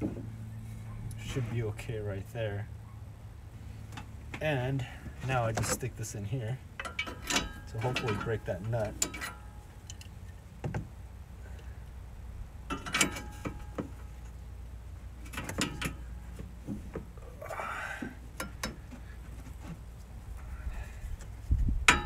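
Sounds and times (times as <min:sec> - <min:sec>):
metal tools clinking: 0:06.8 - 0:10.4, 0:12.7 - 0:13.8.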